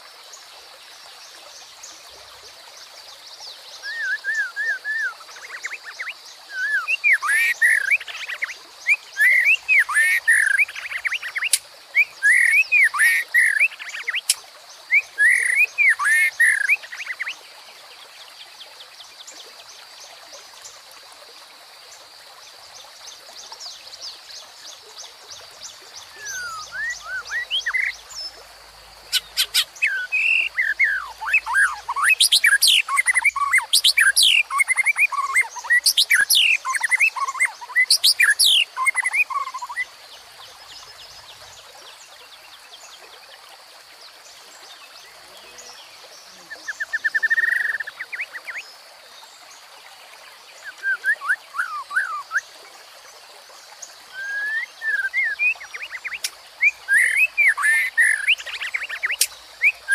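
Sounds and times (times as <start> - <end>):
small stream rushing: 0.0 - 59.9
songbird whistling song: 3.8 - 17.4, 26.1 - 28.4, 29.1 - 39.9, 50.6 - 52.5, 54.1 - 59.9.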